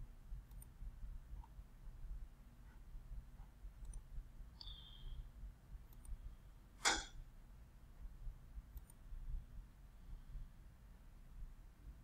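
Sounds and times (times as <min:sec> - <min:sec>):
computer mouse clicks: 0:00.5 - 0:00.8, 0:03.8 - 0:04.8, 0:05.9 - 0:06.2, 0:08.7 - 0:09.0.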